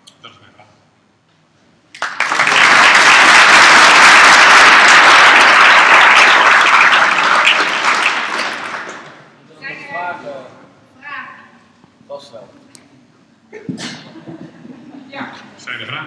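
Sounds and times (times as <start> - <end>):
audience applauding: 1.9 - 9.3.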